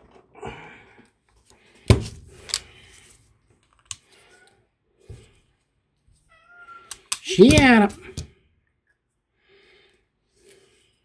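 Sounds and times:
plastic pen parts clicking: 0:06.9 - 0:07.7.

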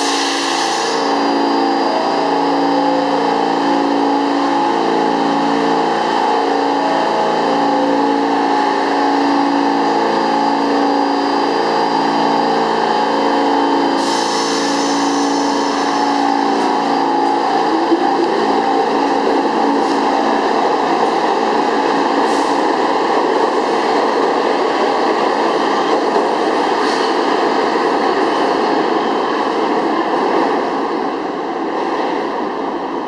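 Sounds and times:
subway train humming: 0:00.0 - 0:33.0
train rumbling pulling out: 0:00.0 - 0:33.0
air hissing: 0:14.0 - 0:16.0.

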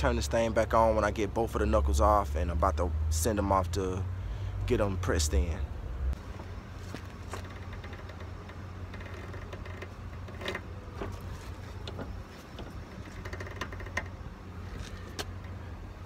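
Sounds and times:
hand ratchet clicking: 0:12.9 - 0:14.2.

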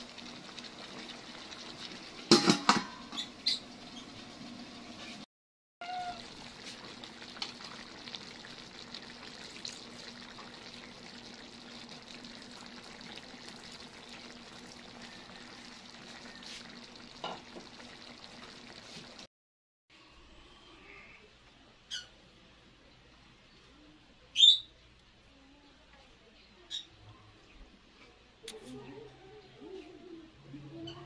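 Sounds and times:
pot simmering and sizzling: 0:00.0 - 0:19.3.

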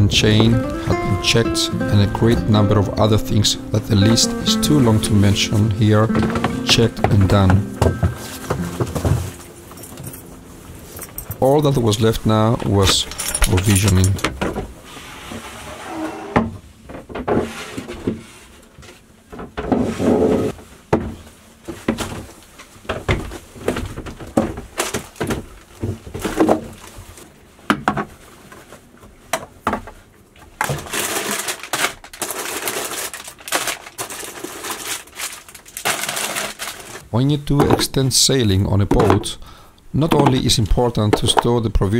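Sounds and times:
knocks and clatter of groceries: 0:06.3 - 0:09.4, 0:19.3 - 0:28.2, 0:29.3 - 0:32.3, 0:38.9 - 0:39.4
plastic bags rustling: 0:30.6 - 0:37.1.

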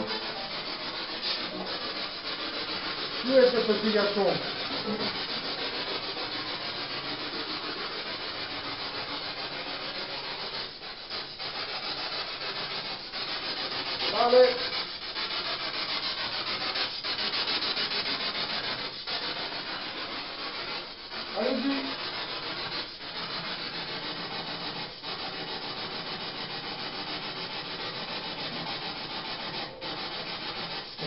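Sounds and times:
pulsing static hiss: 0:14.1 - 0:14.7.

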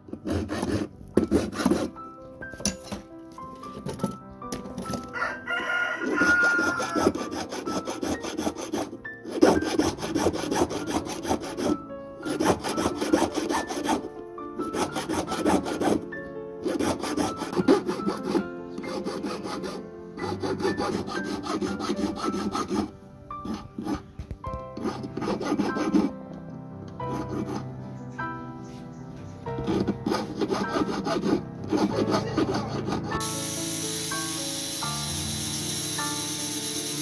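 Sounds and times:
hand file rasping on metal: 0:00.0 - 0:02.0, 0:06.0 - 0:16.0, 0:16.6 - 0:24.1, 0:24.8 - 0:26.2, 0:27.1 - 0:27.6, 0:29.6 - 0:33.3.

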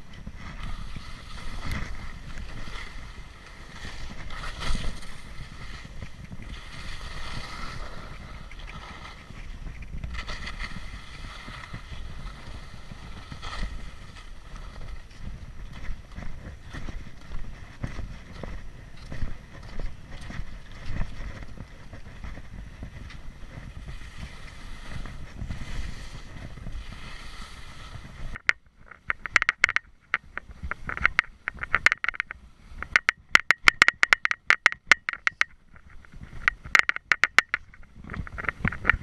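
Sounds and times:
skis rumbling over snow: 0:00.0 - 0:29.3, 0:29.9 - 0:33.0, 0:37.6 - 0:39.0
skis clicking and scraping on ice: 0:00.0 - 0:39.0.

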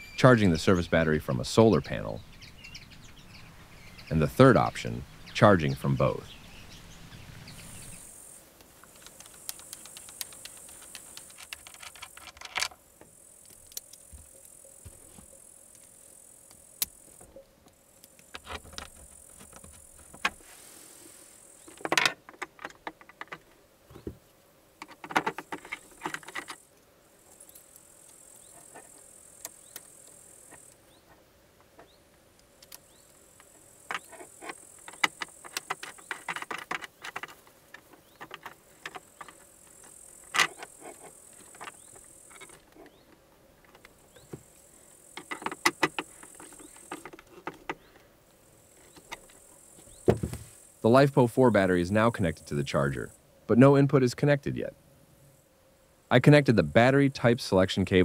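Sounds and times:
faint high hiss: 0:00.0 - 0:58.0
cables and connectors rattling: 0:08.8 - 0:12.8, 0:24.8 - 0:26.6, 0:33.4 - 0:43.0, 0:45.2 - 0:47.9.

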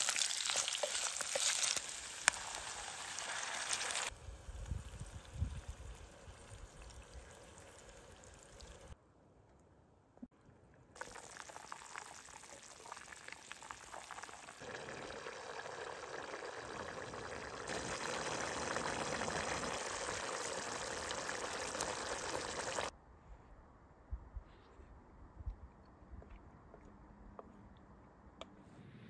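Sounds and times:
soup bubbling at a boil: 0:00.0 - 0:09.0, 0:11.0 - 0:22.9.

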